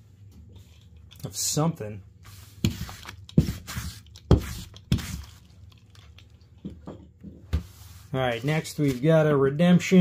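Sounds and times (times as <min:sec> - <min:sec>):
padded mailers rustling and scraping: 0:07.6 - 0:09.3.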